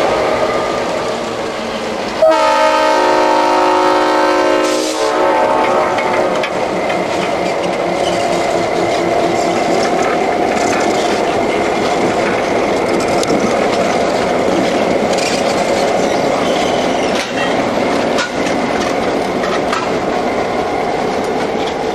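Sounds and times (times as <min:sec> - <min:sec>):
diesel train engine: 0:00.0 - 0:21.9
wheels on rails: 0:04.4 - 0:21.9.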